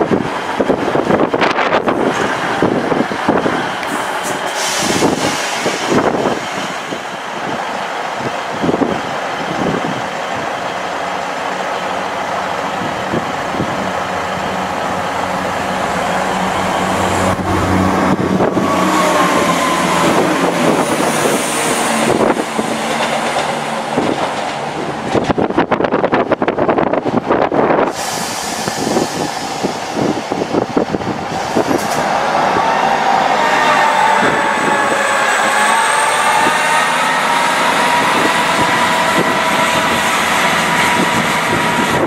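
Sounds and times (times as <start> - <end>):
wind buffeting microphone: 0.0 - 42.0
train braking whine: 3.8 - 6.6, 31.4 - 42.0
diesel engine hum: 11.6 - 25.4.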